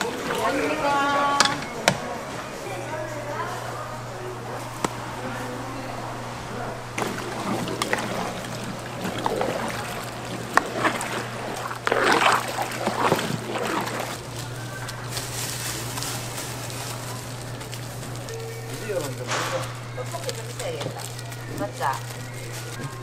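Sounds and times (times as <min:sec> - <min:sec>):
utensils clinking on metal: 0:00.0 - 0:02.2
steady low hum: 0:00.0 - 0:23.0
wet splashing: 0:06.9 - 0:23.0.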